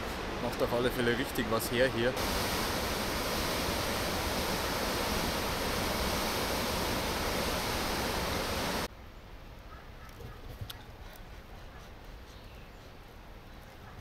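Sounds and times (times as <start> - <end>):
rushing white water: 0.0 - 8.9.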